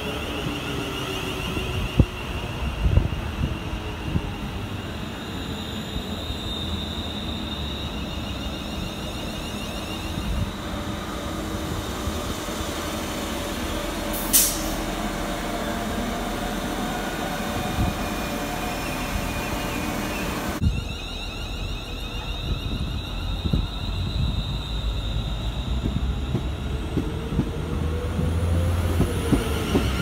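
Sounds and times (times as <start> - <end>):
train wheels rumbling on rails: 22.1 - 30.0.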